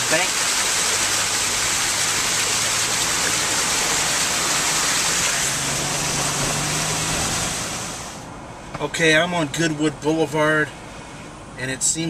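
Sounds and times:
floodwater rushing in a creek: 0:00.0 - 0:08.2
wind and road noise: 0:00.0 - 0:12.0
low engine hum: 0:00.5 - 0:12.0.

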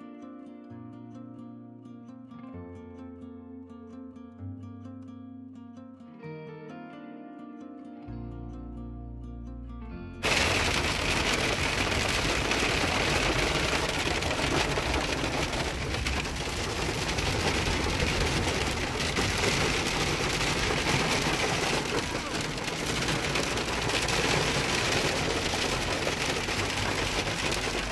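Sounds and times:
plucked harp-like music: 0:00.0 - 0:10.2
hail and rain on car roof: 0:10.2 - 0:27.9.

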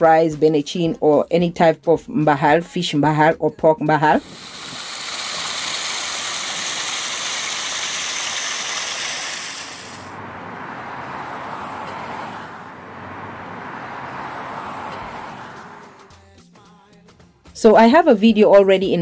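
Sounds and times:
small waterfall rushing: 0:04.2 - 0:10.2.

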